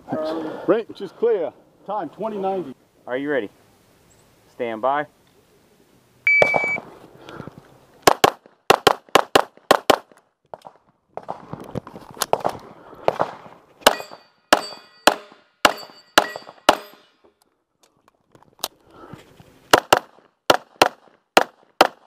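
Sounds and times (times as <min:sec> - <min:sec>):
pistol shots: 0:08.0 - 0:10.1, 0:13.1 - 0:17.1, 0:19.7 - 0:22.0
steel targets clanging: 0:13.8 - 0:17.2.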